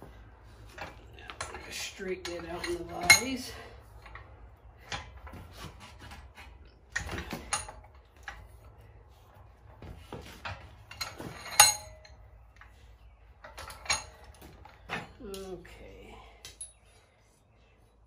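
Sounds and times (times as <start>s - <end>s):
iron clanking: 0.6s - 8.8s, 9.7s - 15.2s.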